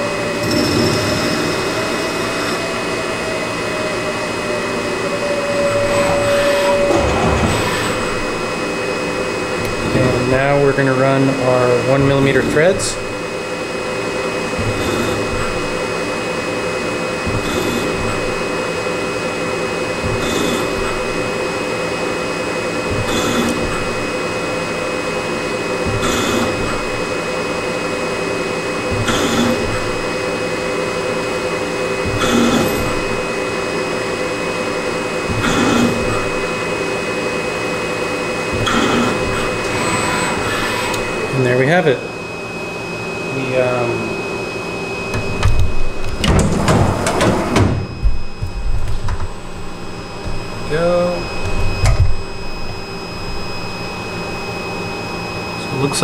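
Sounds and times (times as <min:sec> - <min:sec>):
metal cutting noise: 0:00.0 - 0:42.0
lathe spindle hum: 0:00.0 - 0:56.0.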